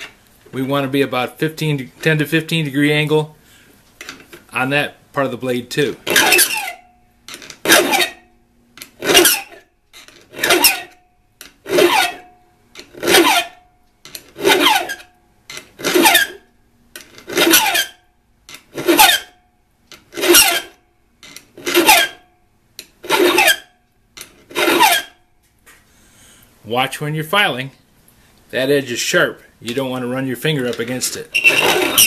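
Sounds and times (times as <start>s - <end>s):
file rasping on steel: 6.1s - 6.8s, 7.6s - 8.2s, 9.0s - 9.6s, 10.3s - 11.0s, 11.7s - 12.3s, 13.0s - 13.6s, 14.4s - 15.1s, 15.9s - 16.4s, 17.3s - 18.0s, 18.8s - 19.3s, 20.2s - 20.7s, 21.6s - 22.2s, 23.0s - 23.7s, 24.5s - 25.2s, 31.4s - 32.0s.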